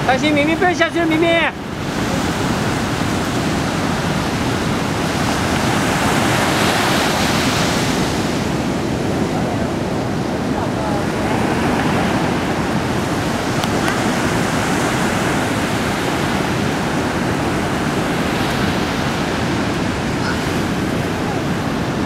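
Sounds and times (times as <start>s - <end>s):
ocean surf breaking: 0.0s - 22.0s.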